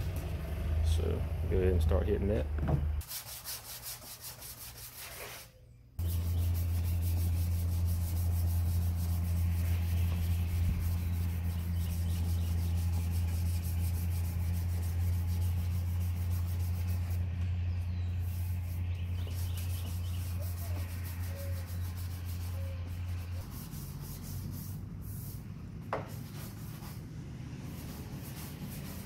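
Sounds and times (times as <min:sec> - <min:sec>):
sandpaper rubbing back and forth: 0:03.0 - 0:17.4, 0:18.0 - 0:29.0
steady low hum: 0:05.9 - 0:29.0.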